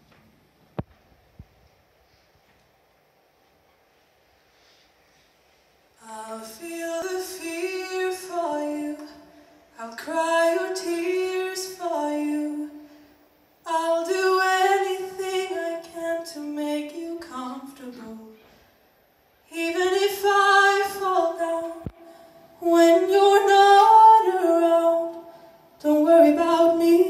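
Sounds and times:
singer breathing: 9.2 - 9.8, 12.7 - 13.3, 21.9 - 22.6, 25.2 - 25.8
woman singing slowly: 9.8 - 12.8, 13.7 - 18.4, 19.5 - 22.0, 22.6 - 27.0.

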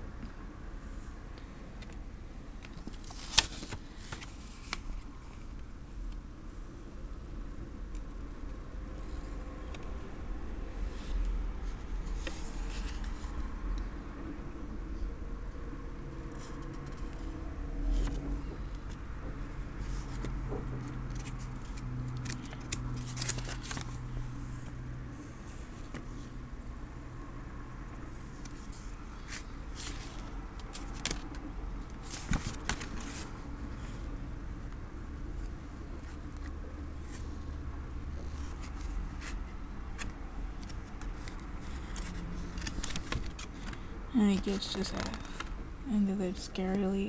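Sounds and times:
low steady hum: 0.0 - 47.0
paper pages rustling: 2.6 - 5.1, 10.9 - 13.3, 19.8 - 24.7, 28.4 - 33.4, 40.0 - 45.6.

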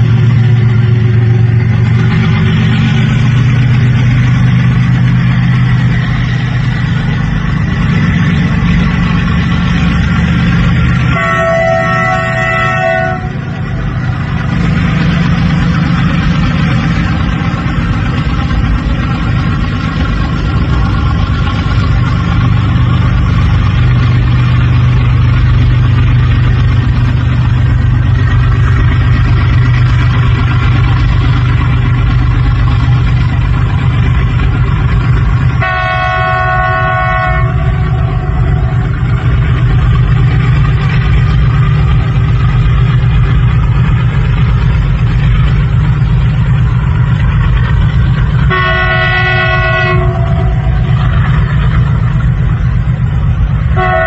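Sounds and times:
locomotive engine droning: 0.0 - 54.0
train wagons rumbling on bridge: 0.0 - 54.0
locomotive horn blasts: 11.0 - 13.7, 35.6 - 39.0, 48.5 - 51.1, 53.7 - 54.0.

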